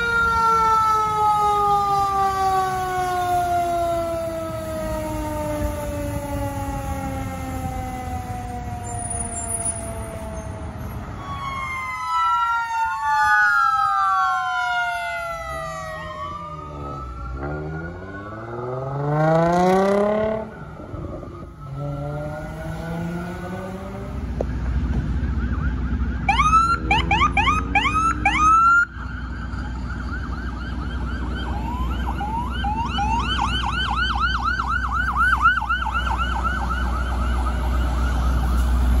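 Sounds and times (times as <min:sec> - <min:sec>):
electronic yelp sirens: 0:00.0 - 0:39.0
engine rumble: 0:00.0 - 0:39.0
fire truck siren: 0:00.0 - 0:39.0
steady high siren tone: 0:00.0 - 0:39.0.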